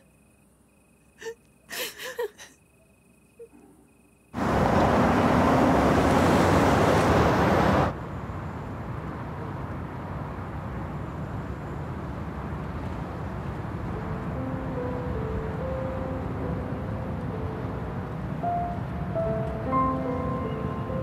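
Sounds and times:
car passing fast: 4.4 - 8.0
road and engine noise inside car: 4.4 - 21.0.

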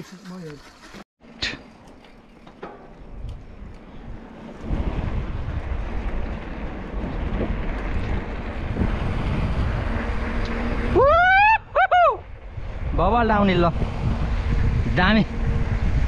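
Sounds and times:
wind buffeting microphone: 2.8 - 16.0
loud whoops: 10.9 - 12.2.

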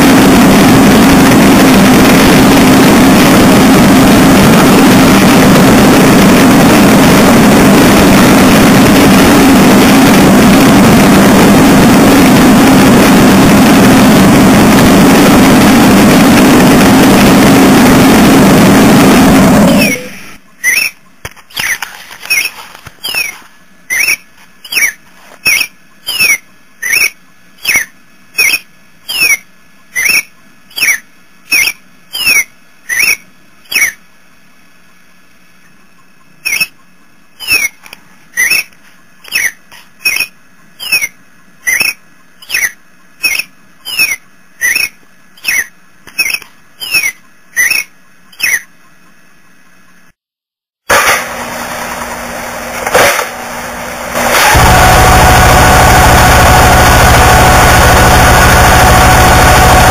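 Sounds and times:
faint steady hum: 0.0 - 50.2
looped squeaky chirp: 19.8 - 34.0, 36.2 - 48.8.

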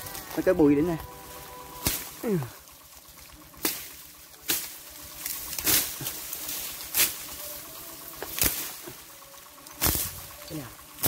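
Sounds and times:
machete slashing through brush: 1.8 - 2.3, 3.6 - 7.3, 8.3 - 8.8, 9.8 - 10.2.

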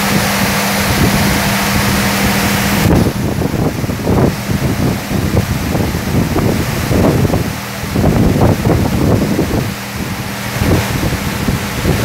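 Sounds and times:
high-pressure water jets hissing: 0.0 - 12.0
pump hum: 0.0 - 12.0.

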